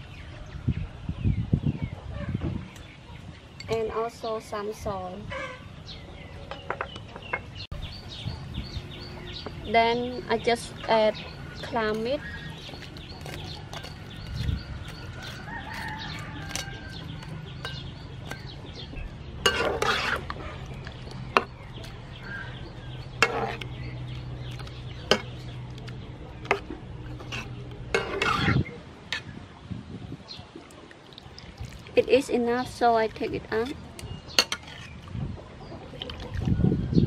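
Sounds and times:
chickens clucking: 0:10.6 - 0:29.4
metal ladle scraping a pan: 0:19.4 - 0:21.5, 0:23.1 - 0:23.7, 0:26.4 - 0:29.3, 0:34.4 - 0:35.0
water boiling: 0:30.7 - 0:33.2.

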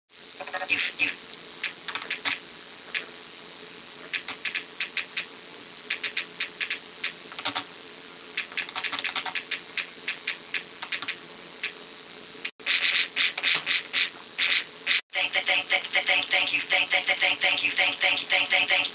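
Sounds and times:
typing on keys: 0:01.6 - 0:02.4, 0:04.1 - 0:05.3, 0:05.9 - 0:07.6, 0:08.4 - 0:11.8.

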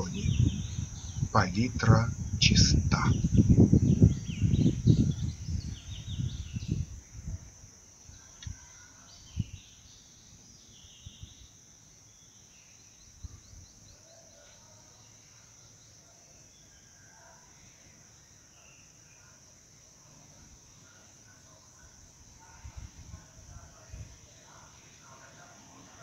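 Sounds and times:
low rumbling: 0:00.0 - 0:06.3
birds chirping: 0:00.0 - 0:07.4
high insect drone: 0:00.0 - 0:26.0.

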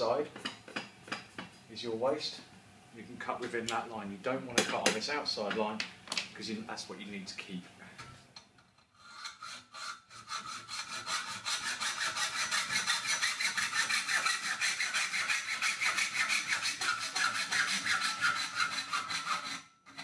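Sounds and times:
hacksaw cutting sheet steel: 0:09.0 - 0:20.0.

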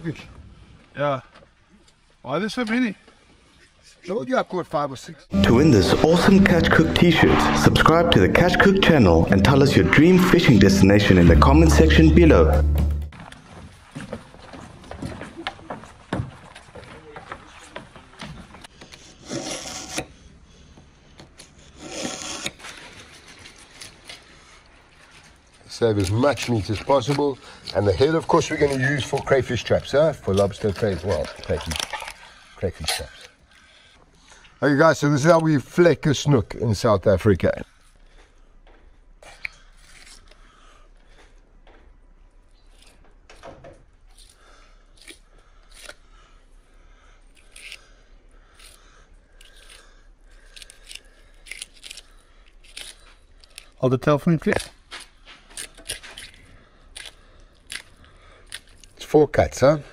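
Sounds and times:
knife rasping through sharpener: 0:19.2 - 0:20.1, 0:21.8 - 0:22.6.

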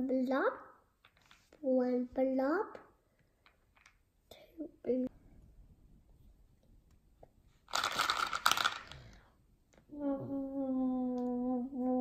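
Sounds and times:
girl singing a long note: 0:09.9 - 0:12.0.

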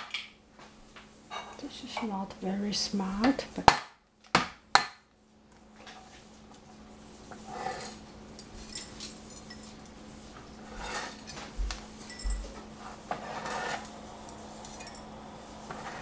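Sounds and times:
kitchen utensils clinking: 0:07.5 - 0:09.8, 0:12.0 - 0:13.9, 0:14.5 - 0:15.2
scraping: 0:10.6 - 0:11.6.

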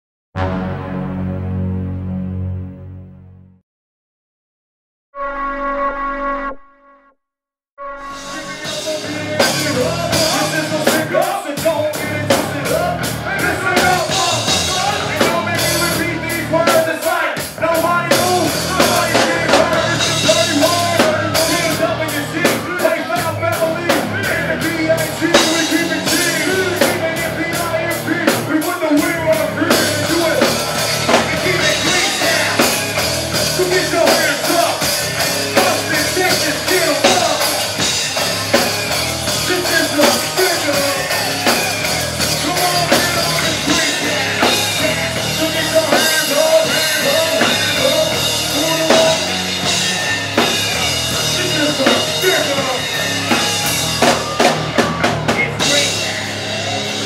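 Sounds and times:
loud music with drum beat: 0:08.2 - 0:57.0.

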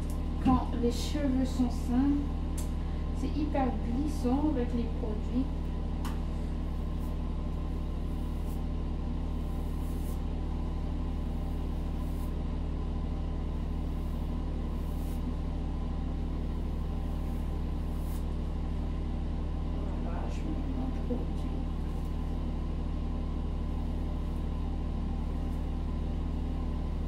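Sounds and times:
low machine hum: 0:00.0 - 0:27.0
brush swishing through wet hair: 0:06.6 - 0:12.6, 0:13.5 - 0:15.5, 0:16.5 - 0:18.5.

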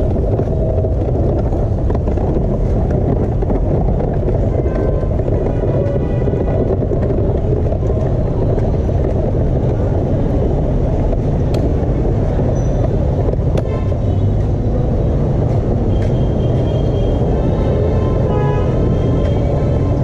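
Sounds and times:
sharp clicks from bumps: 0:00.0 - 0:20.0
wheelchair wheels rolling on paving: 0:00.0 - 0:20.0.

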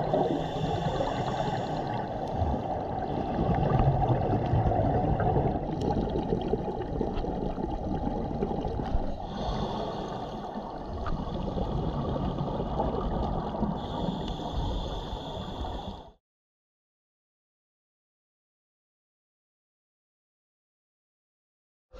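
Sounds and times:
underwater gurgling bubbles: 0:00.0 - 0:15.9.

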